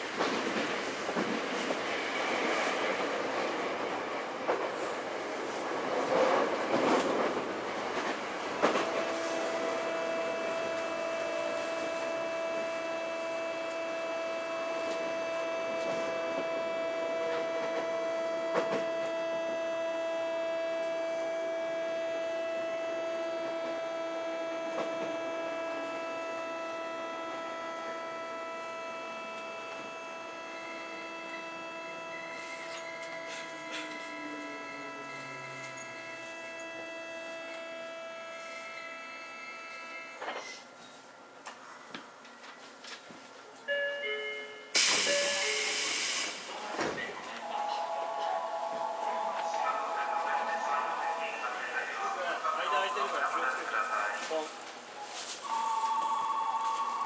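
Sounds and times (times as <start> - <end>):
train running noise: 0.0 - 43.8, 44.7 - 57.0
train motor controller whining: 6.2 - 43.0, 44.8 - 57.0.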